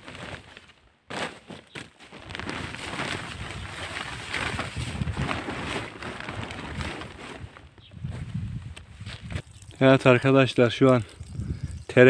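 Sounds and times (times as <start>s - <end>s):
footsteps on dry soil: 0.0s - 10.0s
plastic sheet rustling: 0.0s - 12.0s.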